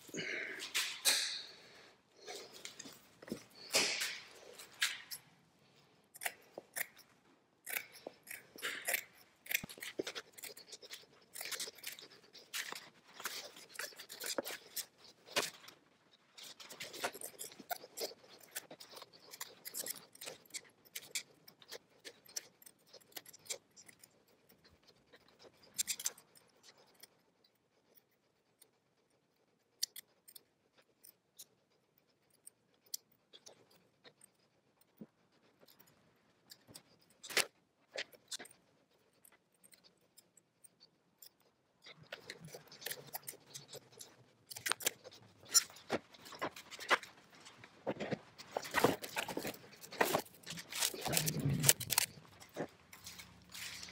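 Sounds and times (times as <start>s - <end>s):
scissors snipping cloth: 6.1s - 15.6s, 48.6s - 53.9s.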